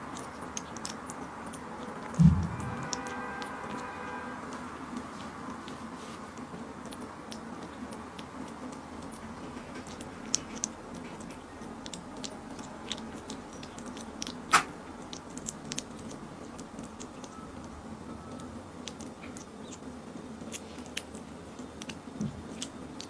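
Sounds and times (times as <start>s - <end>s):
kitten licking and chewing: 0.0s - 23.0s.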